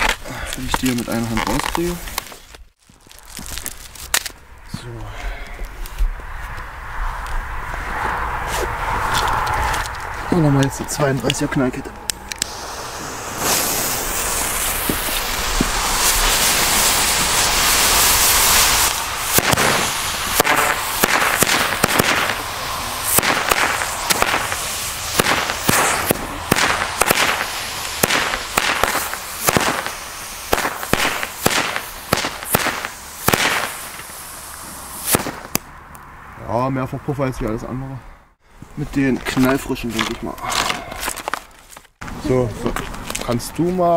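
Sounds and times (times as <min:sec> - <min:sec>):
firecracker fuse hissing: 0:12.2 - 0:35.6
firecracker bangs: 0:12.4 - 0:35.7.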